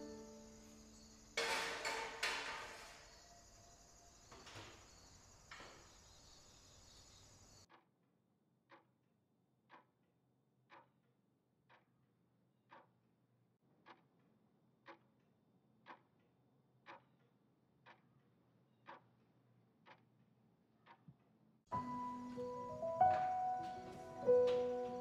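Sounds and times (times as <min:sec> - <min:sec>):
faint clock ticking: 0:08.7 - 0:09.0, 0:10.6 - 0:11.0, 0:11.6 - 0:25.0.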